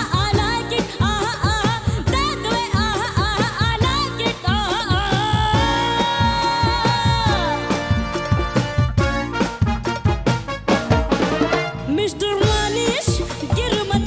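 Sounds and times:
woman singing: 0.0s - 8.1s, 11.9s - 14.0s
live band playing: 0.0s - 14.0s.

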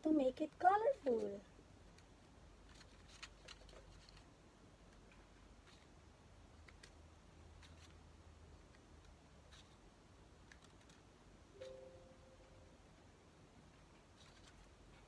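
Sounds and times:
low room hum: 0.0s - 15.0s
soft paper clicks: 1.8s - 4.3s, 6.5s - 9.8s, 10.4s - 11.1s, 14.0s - 15.0s.

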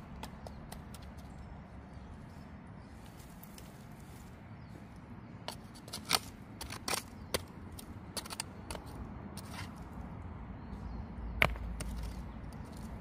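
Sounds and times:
hand hoe scraping stony soil: 5.5s - 8.8s, 9.4s - 9.8s.

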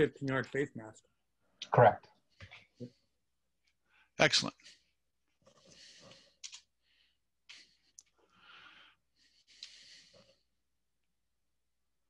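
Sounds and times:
faint breaths into microphone: 5.5s - 10.5s.

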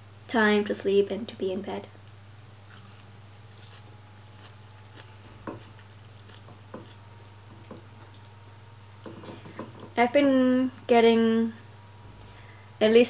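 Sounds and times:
low steady hum: 0.0s - 13.0s
person chewing lettuce: 2.6s - 7.4s.

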